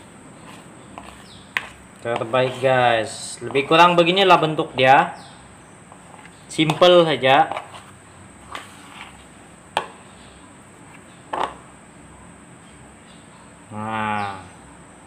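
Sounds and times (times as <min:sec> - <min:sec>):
spoon working dough in bowl: 0:00.4 - 0:04.0, 0:05.9 - 0:09.3.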